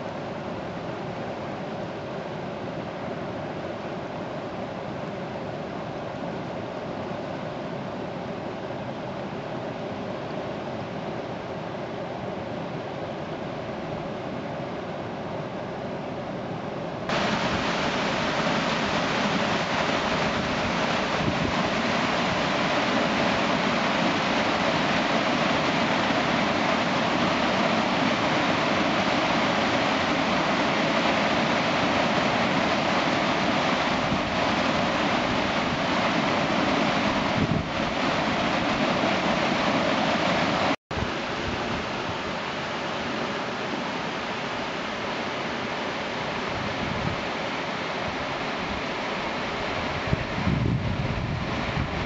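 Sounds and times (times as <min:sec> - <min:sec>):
churning rapids rushing: 0:17.1 - 0:52.0.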